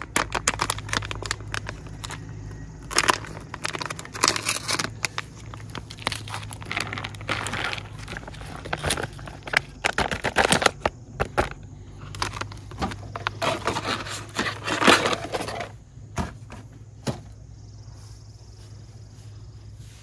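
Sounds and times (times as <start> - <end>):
packaging crinkling: 0.0 - 15.7
low hum: 0.0 - 20.0.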